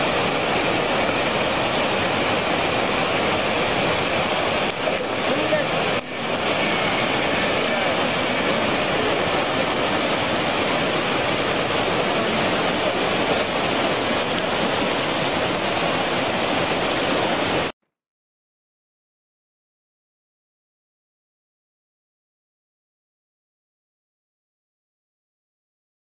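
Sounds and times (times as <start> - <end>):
whitewater river roaring: 0.0 - 17.7.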